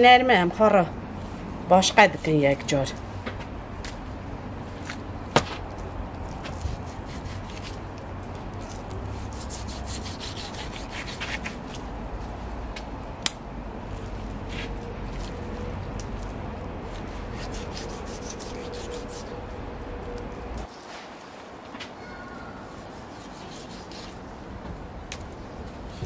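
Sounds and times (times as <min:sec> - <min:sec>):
rubbing and scraping meat: 0:05.7 - 0:11.8, 0:14.4 - 0:21.0.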